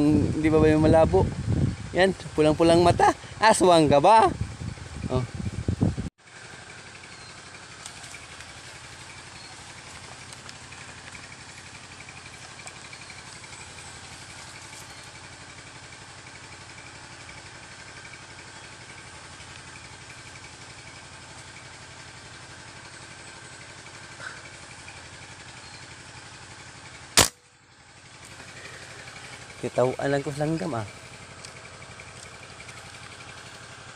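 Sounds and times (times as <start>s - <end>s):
insects droning: 6.2s - 26.8s, 27.6s - 33.9s
rifle shot: 27.2s - 27.4s.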